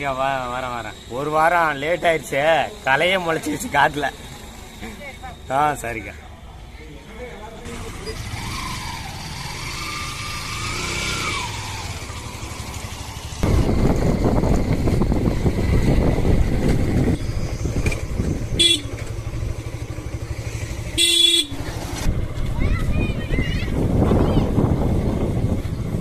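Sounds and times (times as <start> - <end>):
motorcycle engine hum: 0.0 - 26.0
vehicle horn toots: 18.5 - 19.1, 20.9 - 21.7.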